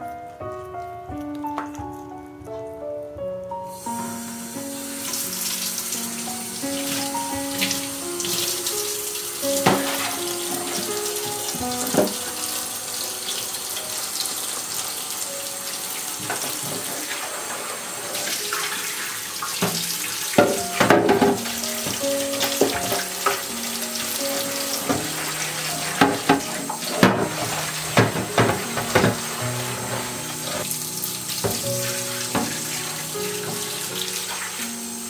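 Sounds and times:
soft piano music: 0.0 - 35.0
tap running into sink: 9.4 - 12.4, 16.2 - 17.2, 19.4 - 23.5, 24.2 - 30.7, 31.3 - 34.6
sponge scrubbing plastic: 24.5 - 30.7, 31.4 - 34.8
plastic drawer knocking: 26.0 - 29.2.

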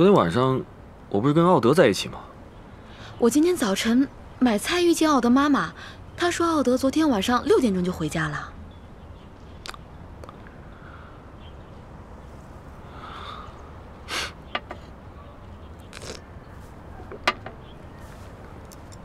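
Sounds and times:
chopsticks tapping porcelain bowls: 14.5 - 14.8.

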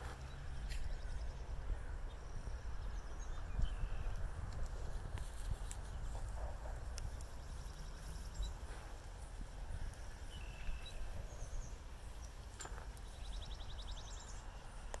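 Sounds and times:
wind rumbling on microphone: 0.0 - 15.0
bird trill: 10.0 - 14.9
bird chirps and calls: 10.2 - 14.7.

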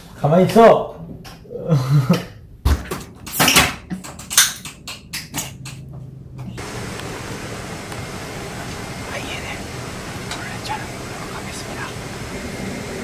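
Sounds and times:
airliner cabin hum: 6.1 - 13.0.

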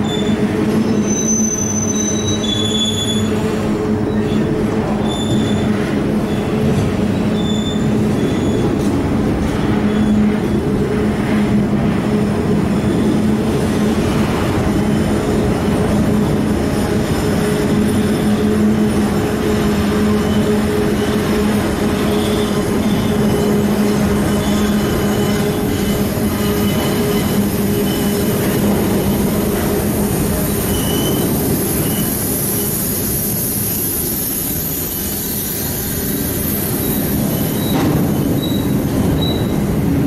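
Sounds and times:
high wheel squeals: 0.0 - 8.9, 9.7 - 10.8, 17.0 - 29.3, 30.3 - 32.8, 33.6 - 39.8
freight train rolling past: 0.0 - 40.0.

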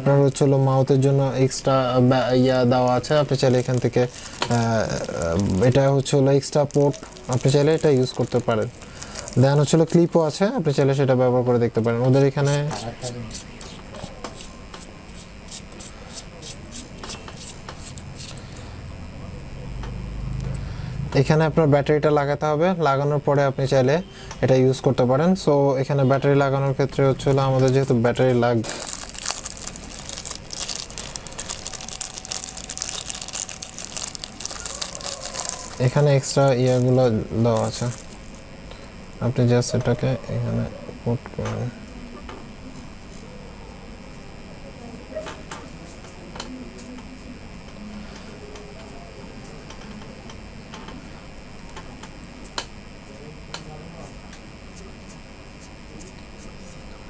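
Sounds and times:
plastic bag crinkling: 1.9 - 10.2, 28.6 - 38.4
hands handling small plastic parts: 3.4 - 10.0, 28.6 - 38.2.

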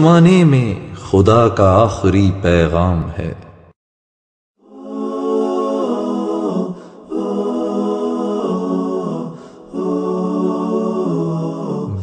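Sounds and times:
a cappella humming vocals: 4.6 - 12.0.

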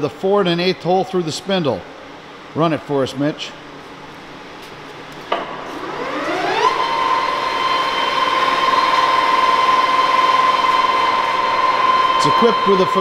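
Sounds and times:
lathe gear whine: 5.7 - 13.0.

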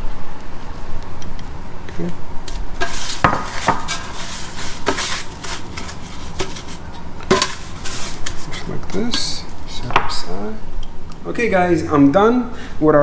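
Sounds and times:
dishes and utensils clinking: 2.8 - 9.5.

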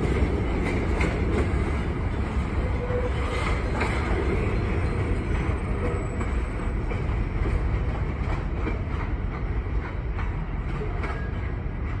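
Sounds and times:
freight train rumbling: 0.0 - 12.0
faint wheel clicks on rails: 6.2 - 12.0.

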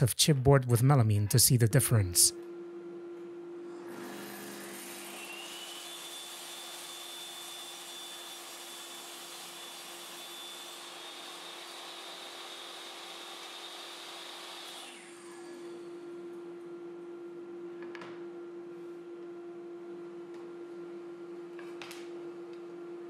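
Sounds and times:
table saw motor hum: 3.6 - 16.8
saw blade whine: 3.7 - 16.0.

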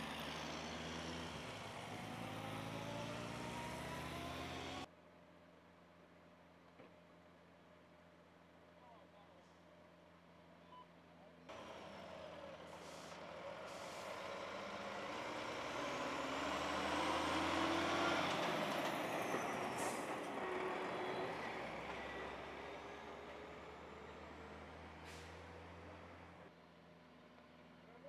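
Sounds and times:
tanker truck driving past: 0.0 - 4.9, 11.5 - 28.0
air brake hisses: 12.7 - 14.2, 25.0 - 25.5.

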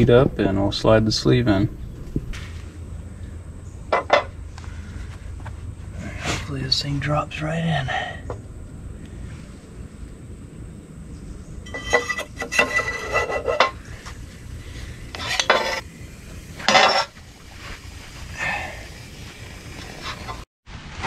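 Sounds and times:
metal clinking and scraping: 11.6 - 14.2, 15.1 - 15.8, 16.6 - 17.2.

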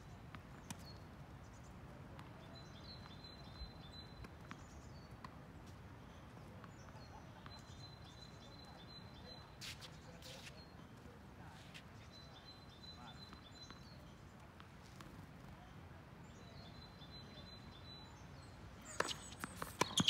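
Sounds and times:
small bird singing: 2.4 - 5.2, 6.0 - 10.8, 12.0 - 14.3, 16.2 - 20.0
tennis balls being struck: 18.8 - 20.0.

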